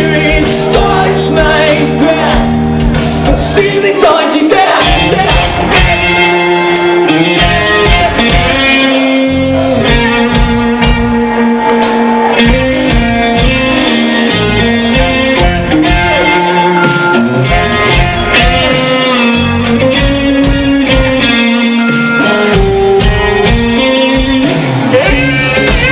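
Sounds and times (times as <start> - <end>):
bass guitar: 0.0 - 25.9
drums: 0.0 - 25.9
electric guitar: 0.0 - 25.9
long held saxophone notes: 25.0 - 25.9.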